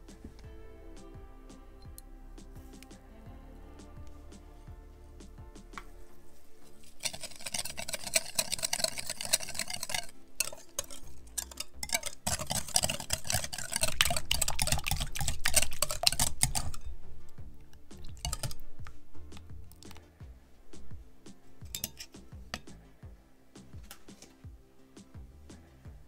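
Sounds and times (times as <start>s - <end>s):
whisk beating batter in glass bowl: 6.8s - 17.0s, 17.9s - 19.0s, 21.7s - 22.1s.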